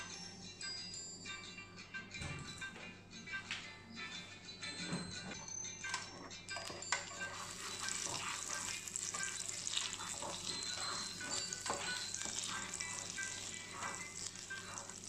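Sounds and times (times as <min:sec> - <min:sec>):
plastic spatula in a pan: 0:06.6 - 0:15.0
butter sizzling in a frying pan: 0:07.1 - 0:15.0.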